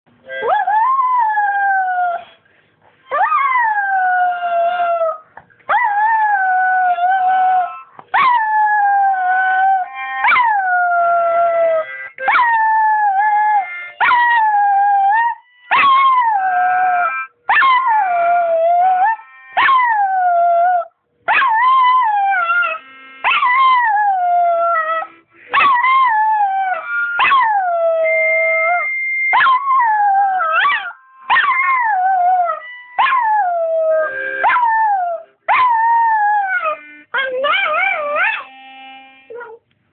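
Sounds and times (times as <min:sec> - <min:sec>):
harmonica notes: 0:00.1 - 0:00.5, 0:06.6 - 0:08.1, 0:08.9 - 0:19.7, 0:22.1 - 0:39.6
dog howling: 0:03.1 - 0:38.5.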